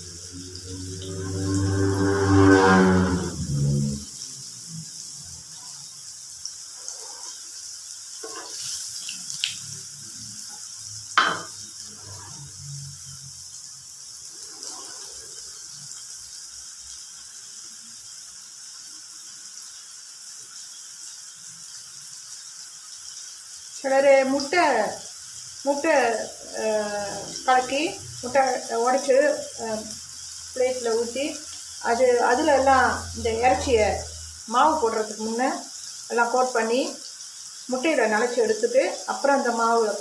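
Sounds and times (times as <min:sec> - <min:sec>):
low droning hum: 0:00.0 - 0:04.1
chicken frying in hot oil: 0:00.0 - 0:40.0.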